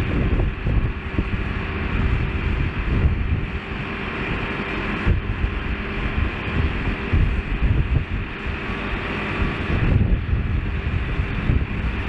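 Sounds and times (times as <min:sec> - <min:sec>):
bulldozer diesel engine running: 0:00.0 - 0:12.0
wind buffeting microphone: 0:00.0 - 0:12.0.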